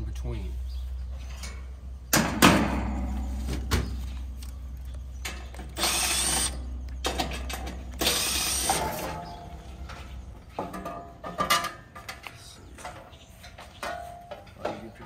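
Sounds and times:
metal clicks clanks and rattles: 6.8s - 8.1s, 8.7s - 15.0s.

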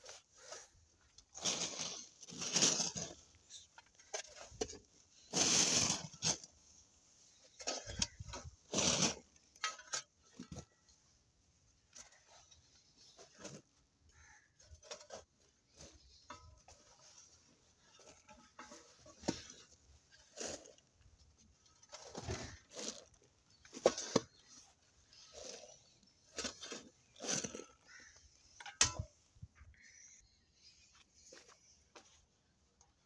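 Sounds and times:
hoe scraping dry earth: 0.0s - 6.7s, 7.3s - 10.7s, 12.1s - 28.6s.

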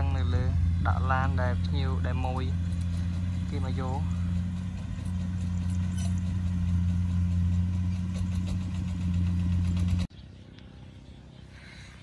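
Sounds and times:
engine humming: 0.0s - 12.0s
open-air ambience: 0.0s - 12.0s.

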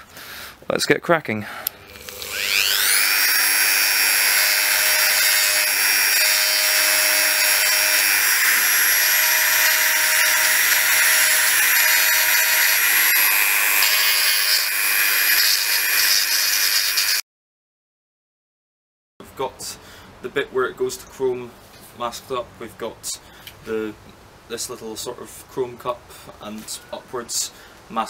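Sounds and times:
rotary tool grinding whine: 1.6s - 17.2s.

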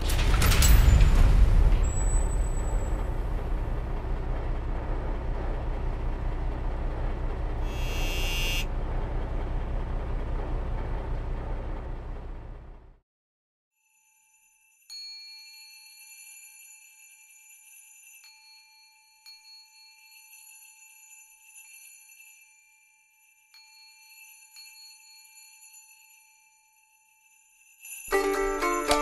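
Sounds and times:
bell-like chime tones: 13.8s - 29.0s
plucked-string music: 28.1s - 29.0s.

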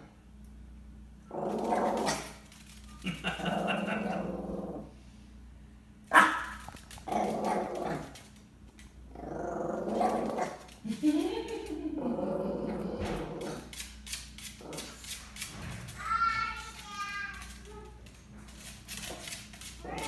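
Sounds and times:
small dog growling: 1.3s - 2.5s, 3.2s - 5.0s, 6.7s - 8.3s, 9.1s - 13.8s, 14.5s - 15.2s, 19.0s - 20.0s.

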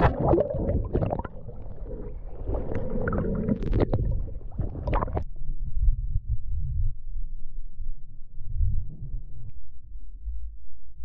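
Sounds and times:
sharp clicks underwater: 0.0s - 5.2s
underwater gurgling and bubbling: 0.0s - 5.3s
low underwater rumble: 0.0s - 11.0s.

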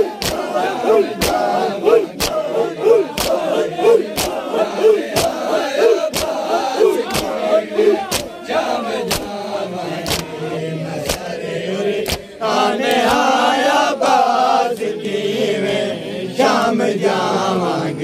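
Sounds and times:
men chanting in unison: 0.0s - 18.0s
chest-beating slaps: 0.2s - 0.5s, 1.2s - 2.5s, 3.1s - 4.4s, 5.1s - 5.4s, 6.1s - 6.4s, 7.0s - 7.4s, 8.0s - 8.4s, 9.1s - 9.4s, 10.0s - 10.3s, 11.0s - 11.3s, 12.0s - 13.2s.

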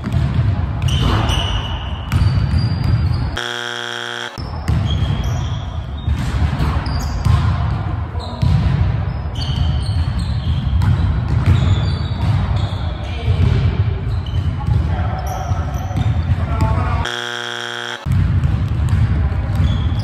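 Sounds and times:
basketball bouncing: 0.0s - 1.2s, 2.1s - 5.2s, 9.6s - 12.6s, 16.0s - 19.8s
steady buzzing tone: 3.4s - 4.4s, 17.0s - 18.1s.

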